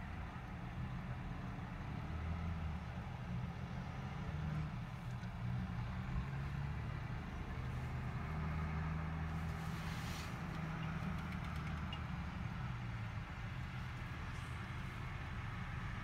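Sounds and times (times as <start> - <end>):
brief hiss: 9.5 - 10.5.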